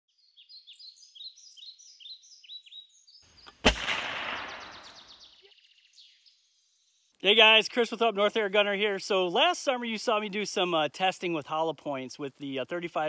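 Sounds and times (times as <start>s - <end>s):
bird chirping: 0.1s - 7.9s
loud gunshot-like bang: 3.6s - 5.2s.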